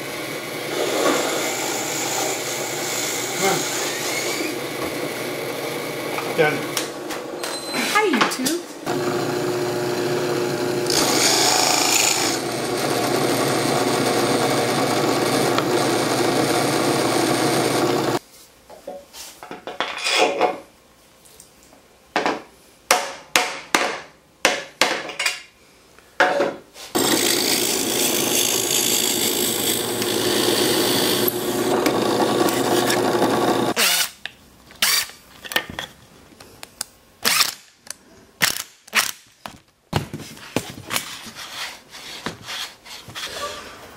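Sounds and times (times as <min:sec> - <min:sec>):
drill press boring wood: 0:00.0 - 0:06.8, 0:08.9 - 0:18.2, 0:27.0 - 0:34.1
cordless drill driving screw: 0:10.8 - 0:18.2, 0:27.0 - 0:34.2, 0:34.8 - 0:35.2.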